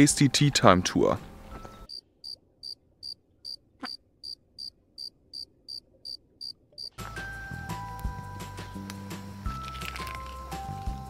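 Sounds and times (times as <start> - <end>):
music: 0.0 - 1.9, 7.0 - 11.0
cricket chirping: 1.9 - 7.0.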